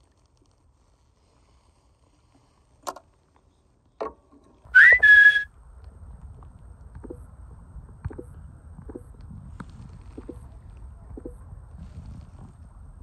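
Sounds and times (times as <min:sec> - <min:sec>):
rising whistle: 0:04.7 - 0:05.5.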